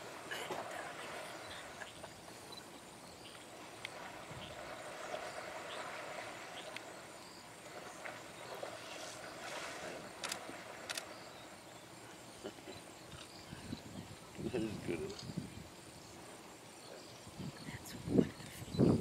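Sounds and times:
water sloshing and splashing: 0:03.3 - 0:11.6
sharp splashes: 0:03.4 - 0:11.6.

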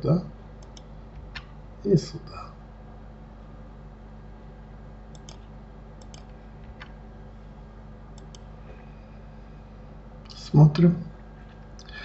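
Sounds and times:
faint electrical hum: 0:00.0 - 0:12.0
mouse and keyboard clicks: 0:05.1 - 0:05.4.

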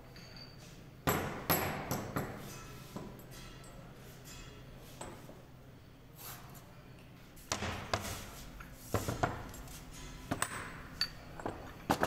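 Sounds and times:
metallic knocks and clinks: 0:00.0 - 0:00.7, 0:09.3 - 0:12.0.

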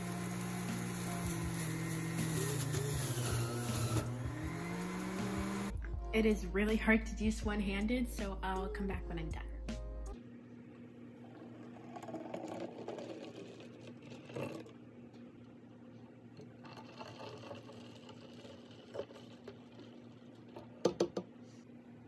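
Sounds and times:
thick juice pouring into bottle: 0:11.2 - 0:14.8, 0:16.5 - 0:20.7.

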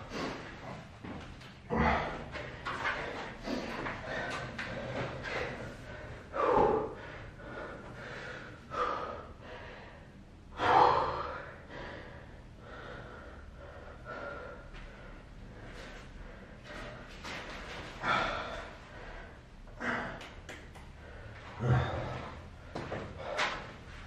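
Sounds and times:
man breathing hard: 0:00.0 - 0:01.0, 0:01.6 - 0:24.0.

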